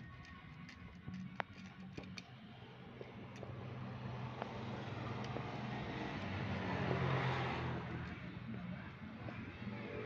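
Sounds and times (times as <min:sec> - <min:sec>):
low engine hum: 0:01.0 - 0:10.0
motor vehicle passing: 0:02.9 - 0:10.0.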